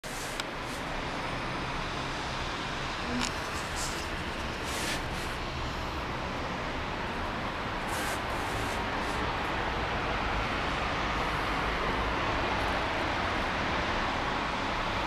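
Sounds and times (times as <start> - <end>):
wind in a snowstorm: 0.0 - 15.0
faint brief hisses: 7.9 - 9.2.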